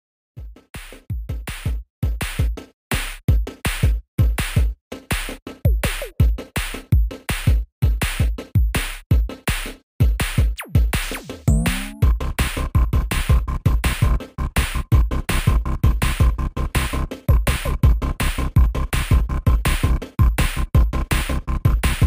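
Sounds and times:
drum machine beat: 0.4s - 22.0s
rising synth sweep: 11.5s - 12.1s.

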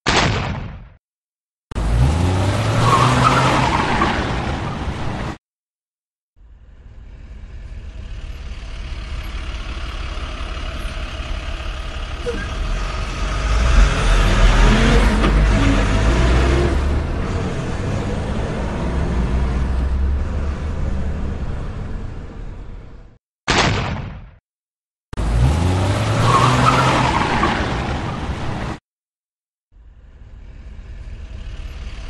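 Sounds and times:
pickup engine rumbling: 6.4s - 23.0s.

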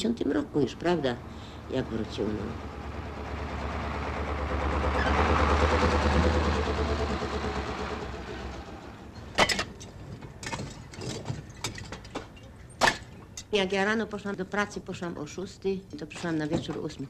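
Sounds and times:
truck driving past on wet road: 1.2s - 9.3s.

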